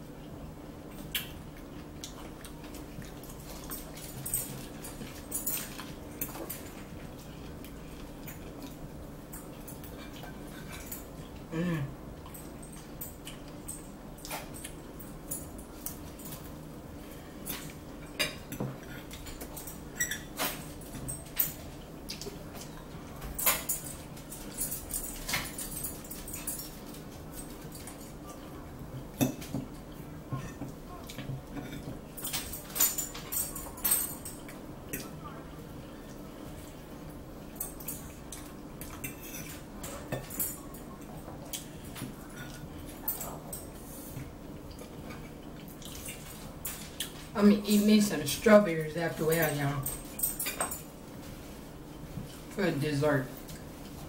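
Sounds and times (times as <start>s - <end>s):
low steady hum: 0.0s - 54.0s
forks scraping against plates: 37.6s - 40.6s.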